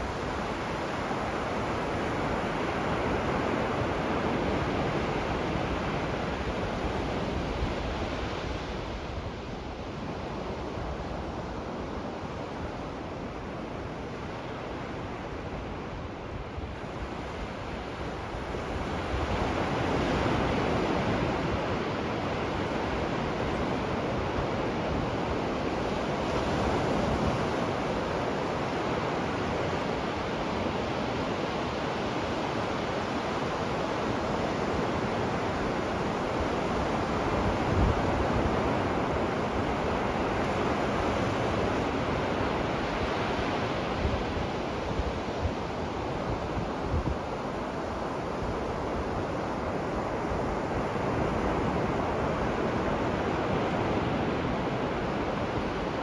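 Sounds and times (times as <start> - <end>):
ocean surf on a sandy beach: 0.0 - 56.0.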